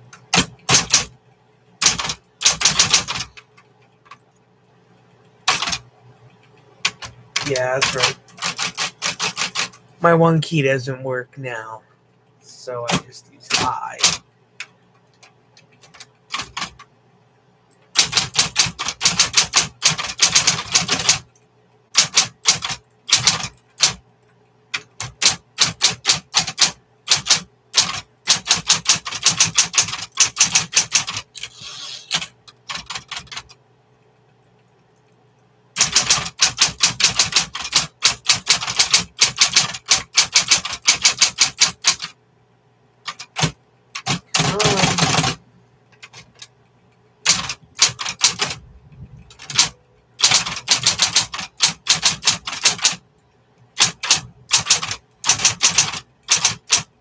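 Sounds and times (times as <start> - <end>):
steady low hum: 0.0 - 57.0
electric typewriter keystrokes: 0.1 - 1.1, 1.8 - 3.5, 5.4 - 5.8, 6.8 - 9.8, 12.8 - 14.2, 15.2 - 16.9, 17.9 - 21.3, 21.9 - 24.0, 24.7 - 33.6, 35.8 - 42.2, 43.0 - 45.4, 47.2 - 48.6, 49.3 - 53.0, 53.8 - 57.0.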